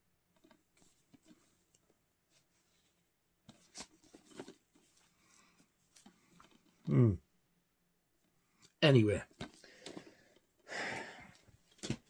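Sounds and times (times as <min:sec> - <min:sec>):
faint clicks and rustles: 0:00.3 - 0:06.9.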